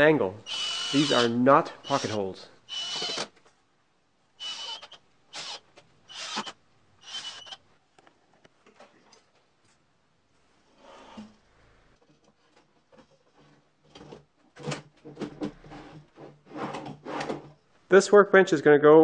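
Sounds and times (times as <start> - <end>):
cordless drill driving screws: 0.5 - 3.3, 4.4 - 7.6.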